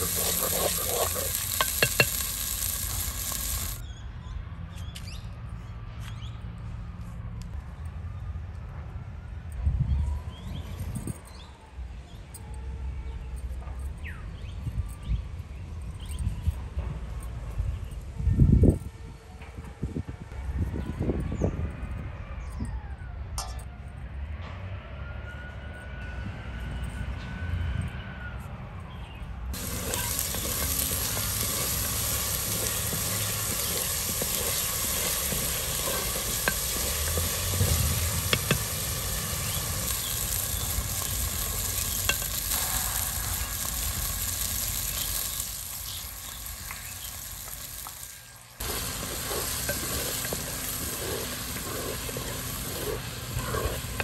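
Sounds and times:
spices sizzling in hot oil: 0.0s - 3.8s, 29.6s - 54.0s
wooden spatula stirring: 48.6s - 54.0s.

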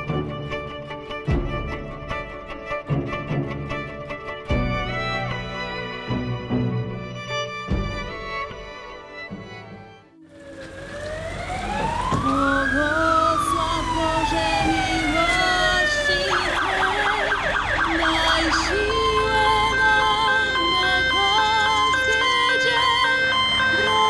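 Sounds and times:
emergency vehicle siren: 10.1s - 24.0s.

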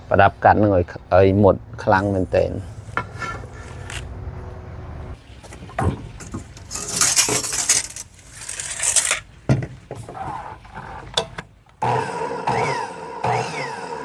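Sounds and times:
hissing scraping: 6.2s - 9.2s
metal pieces clinking: 6.6s - 9.2s.

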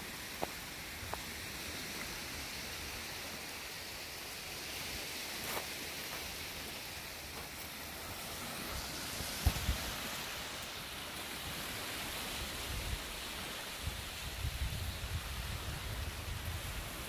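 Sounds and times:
wind hissing: 0.0s - 17.0s
footsteps on gravel: 0.3s - 1.3s, 5.4s - 7.6s.

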